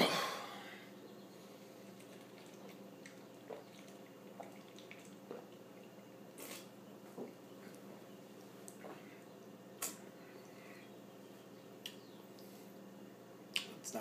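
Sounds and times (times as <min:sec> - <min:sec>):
swallowing gulps: 0:02.0 - 0:10.6.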